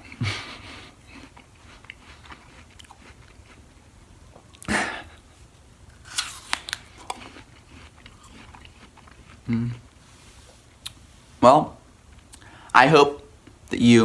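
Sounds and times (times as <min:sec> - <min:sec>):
person chewing apple: 0:00.0 - 0:10.0, 0:12.1 - 0:12.5
biting into apple slice: 0:05.9 - 0:09.8.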